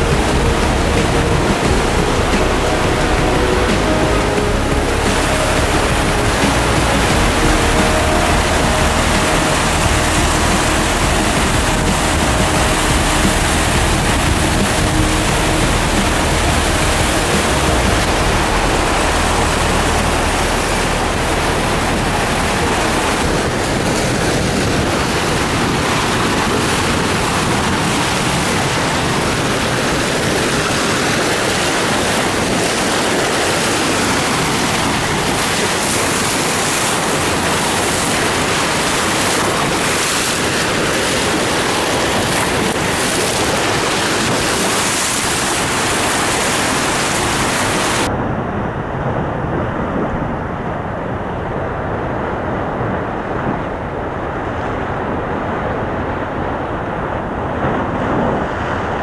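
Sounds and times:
whitewater rushing: 0:00.0 - 0:48.2, 0:50.2 - 0:59.0.

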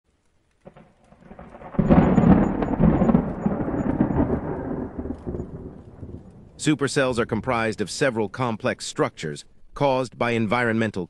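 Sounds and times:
thunder rumbling: 0:00.6 - 0:08.9.

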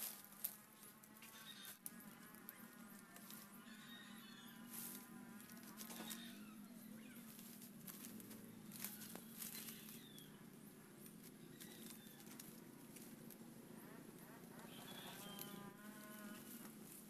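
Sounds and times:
palm leaves rustling and clicking: 0:00.0 - 0:03.7, 0:04.6 - 0:06.5, 0:07.2 - 0:14.3
steady low hum: 0:01.8 - 0:17.0.

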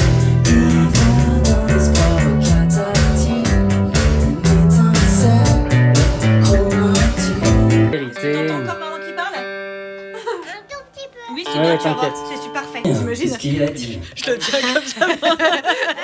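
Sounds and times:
rock band playing: 0:00.0 - 0:10.5, 0:11.4 - 0:13.6.

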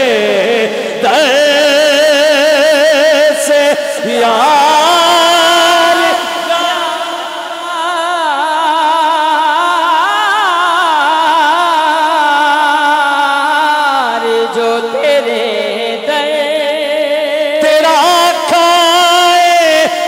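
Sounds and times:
man singing through microphone: 0:00.0 - 0:20.0.

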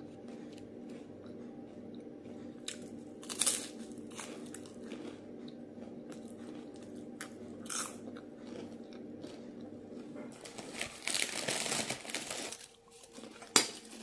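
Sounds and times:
chewing with small crunches: 0:00.0 - 0:14.0
steady low hum: 0:00.0 - 0:14.0
loud crunch of biting: 0:02.6 - 0:05.2, 0:06.1 - 0:09.5.

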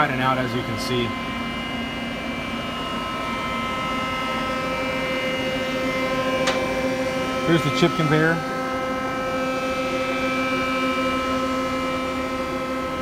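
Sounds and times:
machine hum with held tones: 0:00.0 - 0:13.0.

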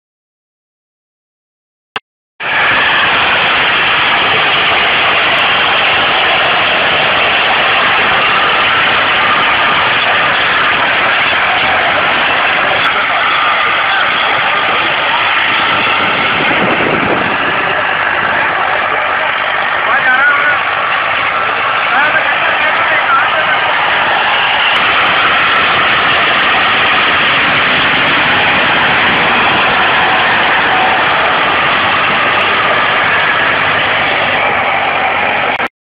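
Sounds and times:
tractor with rotavator churning soil: 0:02.4 - 0:35.7.

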